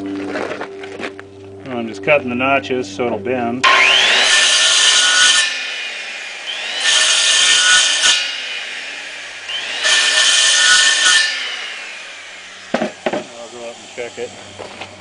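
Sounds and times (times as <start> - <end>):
circular saw cutting wood: 3.6 - 15.0.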